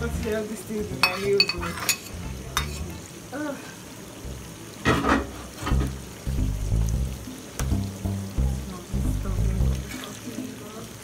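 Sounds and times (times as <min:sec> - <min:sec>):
food frying: 0:00.0 - 0:11.0
metal spatula scraping pan: 0:01.0 - 0:02.9, 0:09.8 - 0:10.2.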